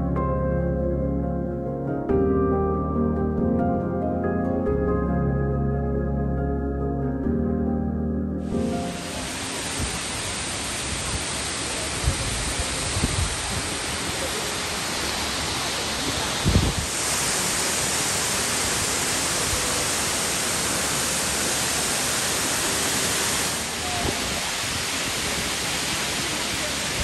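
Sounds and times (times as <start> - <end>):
waterfall rushing: 8.4 - 27.0.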